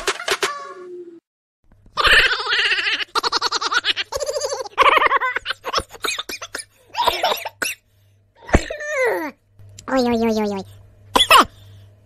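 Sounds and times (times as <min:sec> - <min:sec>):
person laughing: 0:02.0 - 0:07.4.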